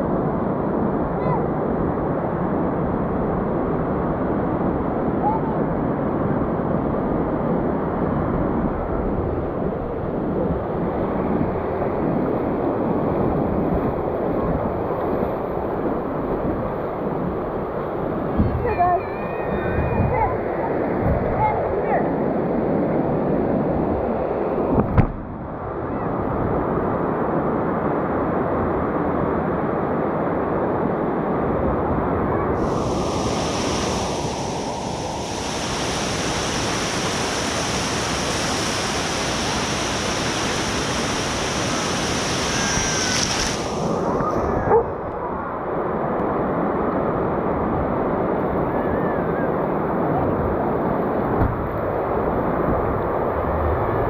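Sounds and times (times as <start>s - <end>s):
surf washing around board: 32.6s - 45.1s.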